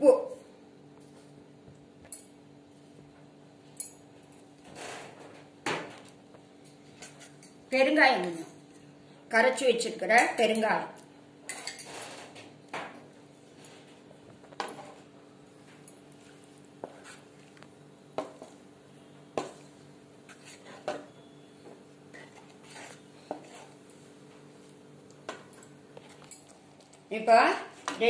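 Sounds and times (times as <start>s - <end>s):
faint steady hum: 0.0s - 28.0s
spoon knocking and scraping pan: 14.5s - 15.0s, 18.1s - 18.6s, 19.3s - 23.8s.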